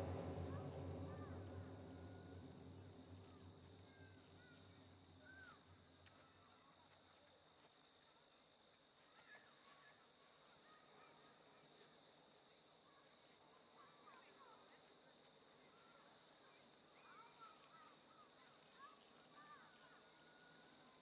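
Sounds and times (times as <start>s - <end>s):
low sustained sound: 0.0s - 5.5s.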